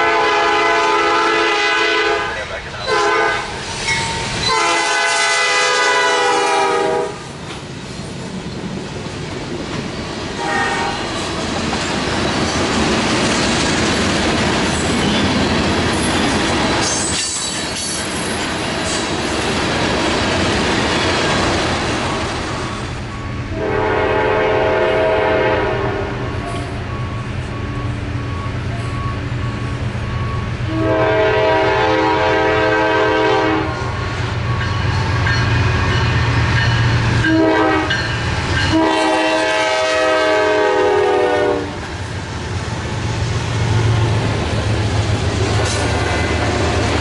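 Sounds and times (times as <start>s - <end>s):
locomotive air horn: 0.0s - 3.6s, 4.4s - 7.3s, 10.4s - 11.1s, 23.5s - 26.7s, 30.7s - 33.9s, 37.2s - 38.0s, 38.7s - 41.8s
lower train horn: 0.0s - 3.6s, 4.4s - 7.4s, 10.4s - 11.2s, 23.4s - 26.9s, 30.2s - 34.0s, 37.2s - 41.9s
train wheels rumbling and clacking: 2.4s - 47.0s.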